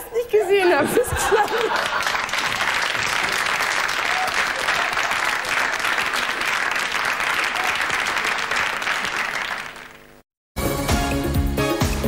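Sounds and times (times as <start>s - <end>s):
studio audience applauding: 1.2s - 10.2s.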